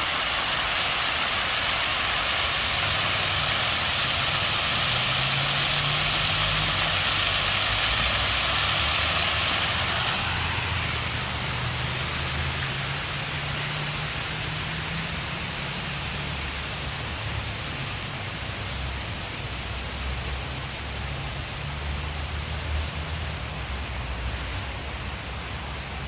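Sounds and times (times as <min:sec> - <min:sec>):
outdoor background hiss: 0:00.0 - 0:26.0.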